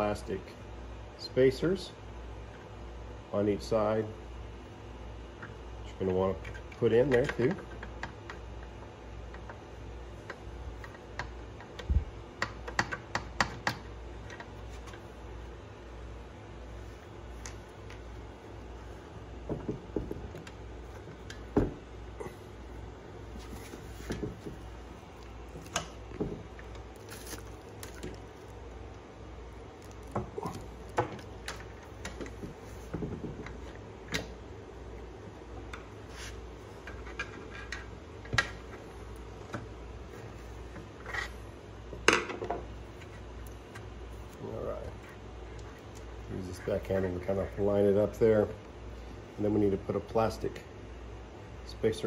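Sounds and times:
clicks and knocks of handling parts: 10.2 - 15.0, 29.8 - 34.4, 36.8 - 41.3.

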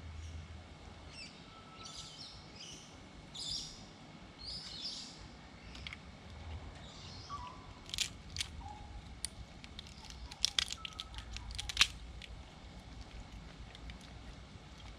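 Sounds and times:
crab shell cracking: 7.8 - 14.9.

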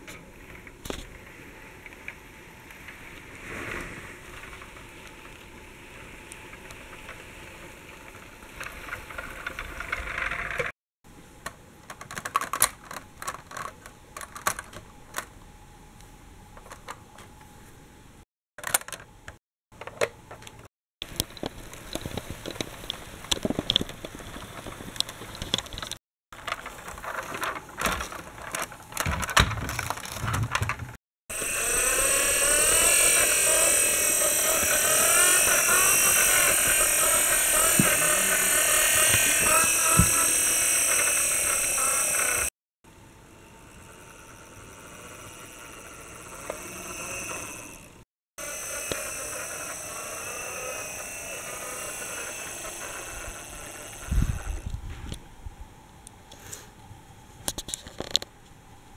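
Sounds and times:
plastic toy clicks and rattles: 11.4 - 15.3, 18.6 - 30.9
toy doors snapping: 11.4 - 15.3, 18.6 - 22.7, 25.0 - 42.5, 48.4 - 54.2
loud warbling electronic sound: 31.3 - 42.5.

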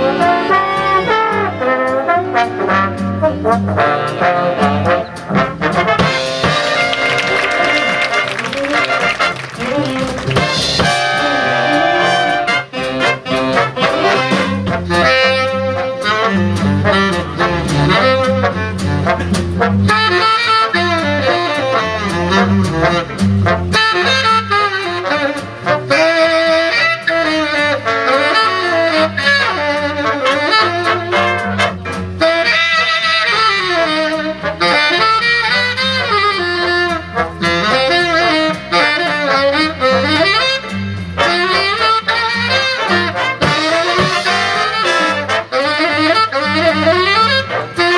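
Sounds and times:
plucked double bass: 0.0 - 27.2, 28.7 - 47.9
brass section: 0.0 - 47.9
rhythm section: 5.2 - 21.0, 36.4 - 47.9
saxophone solo: 6.1 - 47.9.

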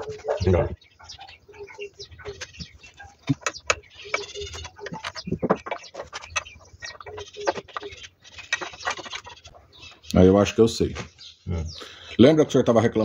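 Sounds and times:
bird calling: 0.0 - 12.4
metal parts and tools clinking: 3.3 - 9.2.

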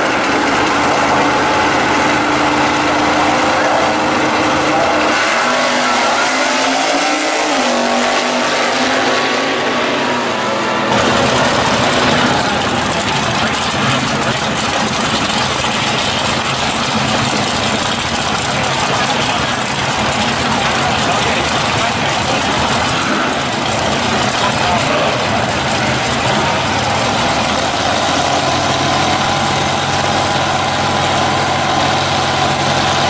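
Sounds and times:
dense steady engine noise: 0.0 - 33.0
drag racing car engines: 0.0 - 33.0
car engine launching: 10.8 - 33.0.

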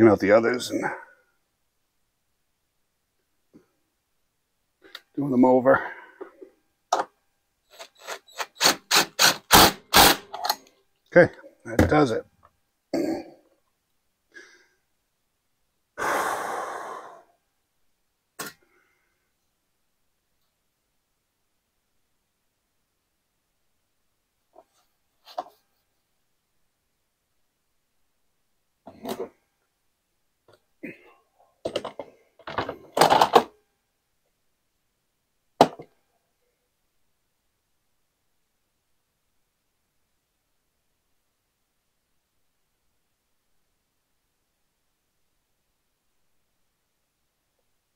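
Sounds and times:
man sighing: 16.0 - 17.3.

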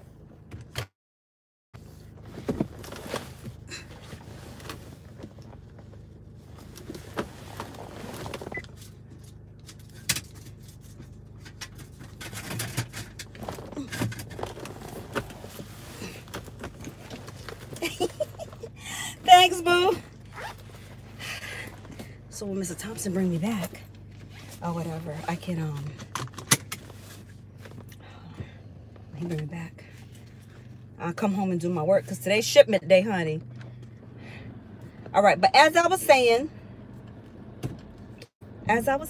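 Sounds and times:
person shifting in car seat: 1.8 - 22.2
car cabin hum: 1.8 - 39.0.

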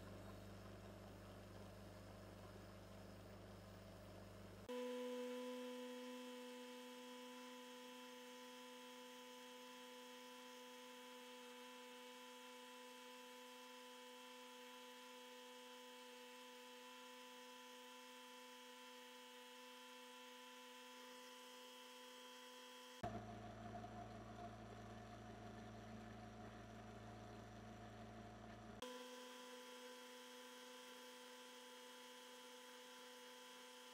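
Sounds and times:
polishing motor humming: 4.6 - 23.1, 28.8 - 33.9.

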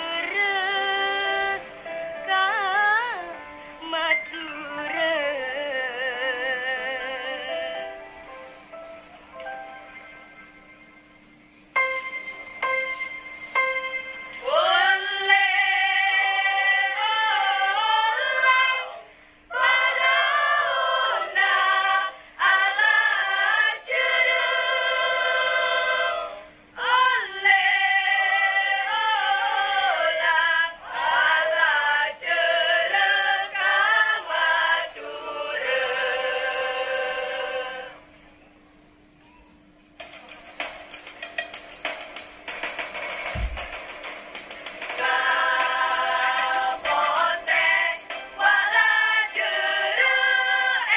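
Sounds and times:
faint steady hum: 0.0 - 50.9
choir singing unaccompanied: 14.4 - 38.0, 44.8 - 50.9.

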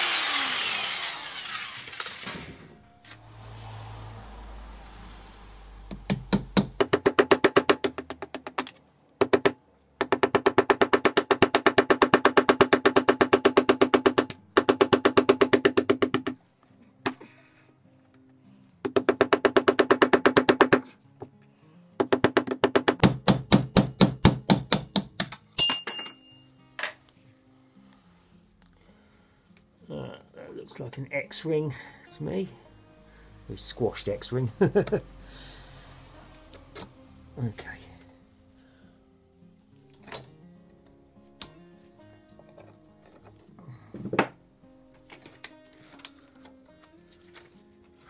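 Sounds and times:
power tool hammering on metal: 0.0 - 2.6, 5.9 - 8.6, 9.2 - 16.4, 18.8 - 20.9, 22.0 - 25.3.

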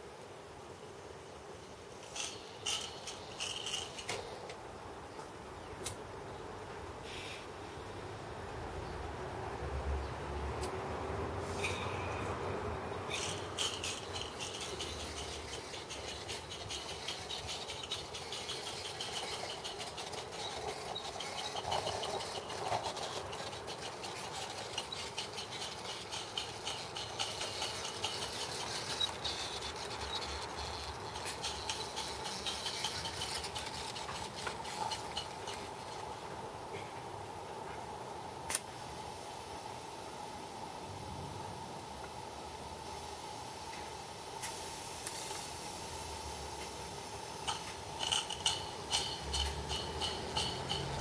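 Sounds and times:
small wheel clicks: 2.0 - 4.3, 13.1 - 36.2, 47.4 - 51.0
steam locomotive exhaust beat: 48.3 - 51.0.

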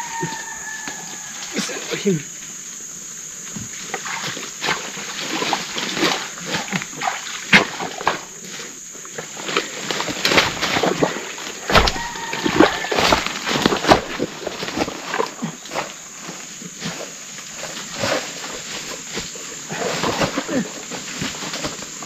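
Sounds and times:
feet squelching through mud: 9.2 - 16.4.

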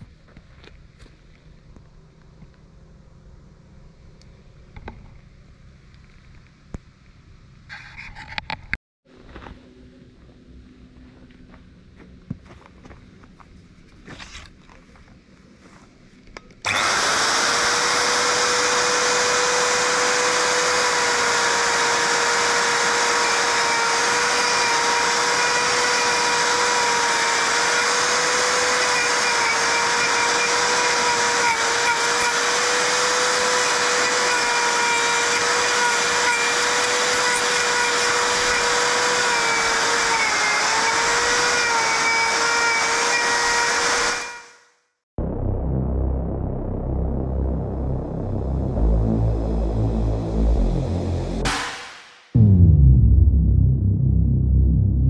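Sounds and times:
electric router whining: 16.6 - 44.5.

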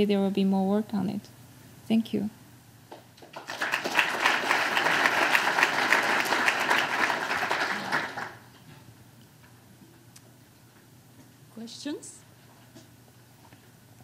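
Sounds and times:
audience applauding: 3.2 - 8.5.

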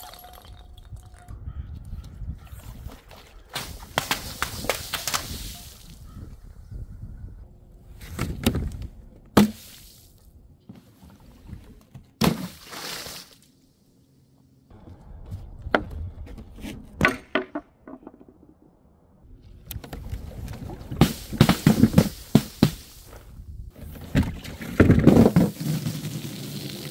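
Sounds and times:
splashing: 12.2 - 13.5.

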